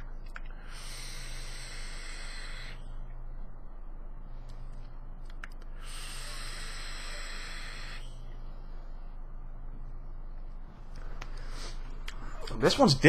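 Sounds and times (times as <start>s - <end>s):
hiss of air and vapour: 0.5s - 2.8s, 5.7s - 9.2s.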